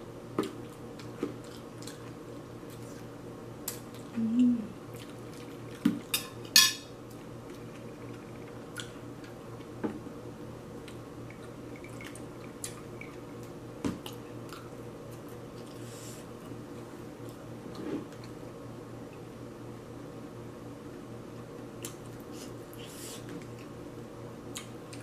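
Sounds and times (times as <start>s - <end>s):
steady low hum: 0.0s - 25.0s
metal spoon clinking on plate: 6.2s - 6.9s.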